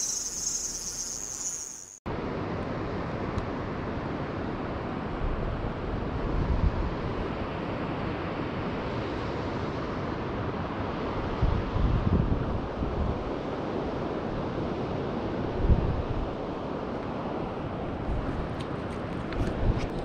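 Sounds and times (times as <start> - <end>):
wind on microphone: 11.1 - 13.4, 15.4 - 16.6, 17.9 - 20.0.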